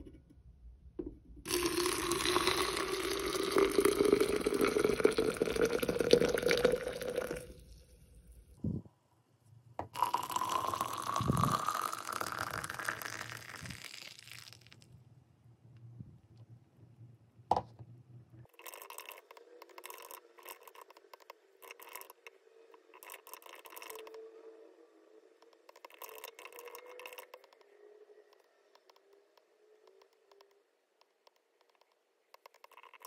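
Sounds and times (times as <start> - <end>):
water pouring into bottle: 1.5 - 7.8, 10.0 - 14.8, 18.5 - 21.0, 21.6 - 22.3, 22.9 - 24.1, 25.8 - 27.3.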